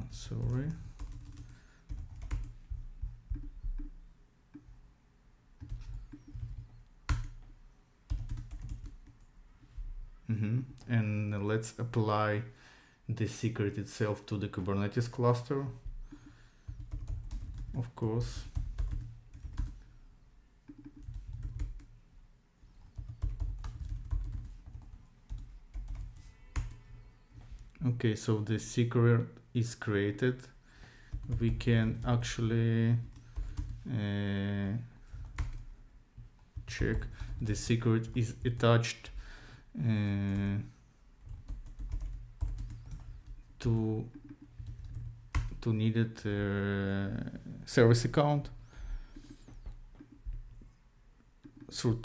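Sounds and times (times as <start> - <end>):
computer keyboard typing: 0.3 - 4.7, 5.6 - 7.5, 8.1 - 9.3, 16.1 - 19.8, 20.7 - 21.9, 22.8 - 27.0, 31.1 - 32.2, 33.0 - 33.9, 35.1 - 35.7, 36.5 - 38.6, 41.2 - 45.6.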